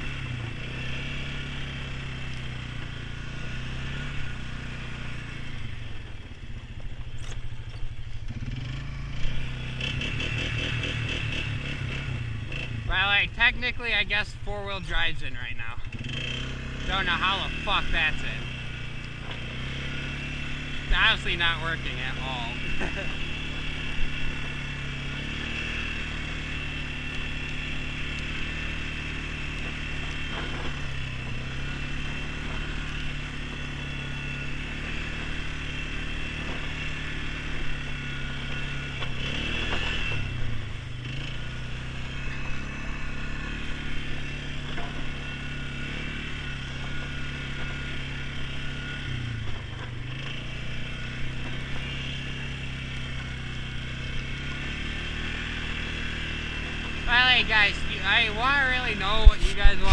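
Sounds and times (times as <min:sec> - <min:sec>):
atv engine running: 0:00.0 - 0:59.9
steady high whine: 0:16.8 - 0:39.2, 0:39.8 - 0:59.9.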